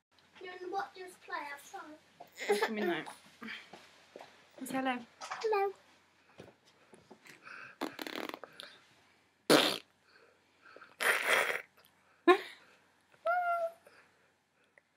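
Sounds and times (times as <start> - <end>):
children blowing raspberries: 7.8 - 8.6, 10.8 - 11.7.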